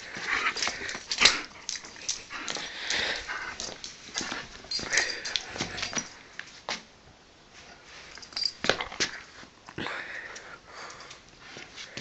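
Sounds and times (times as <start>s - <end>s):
dog breathing roughly: 0.0s - 6.2s
scuffling: 0.0s - 6.8s.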